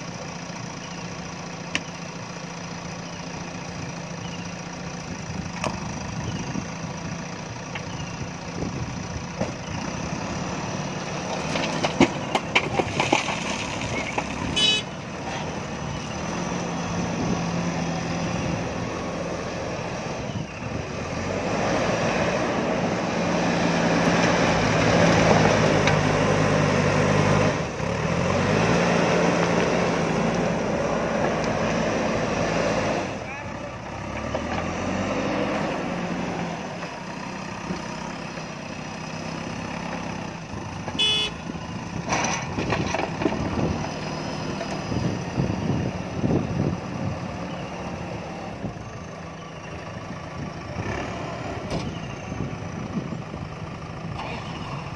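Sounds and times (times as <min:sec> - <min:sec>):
diesel engine running: 0:00.0 - 0:54.9
gravel clattering into steel bed: 0:11.4 - 0:14.5
horn toot: 0:14.5 - 0:15.0, 0:41.0 - 0:41.4.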